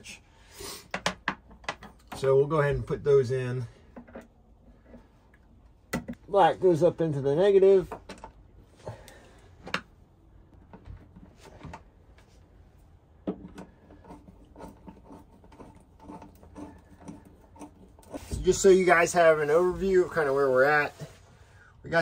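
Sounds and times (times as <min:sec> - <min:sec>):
small clicks and rubbing of wiring: 0:13.4 - 0:18.2.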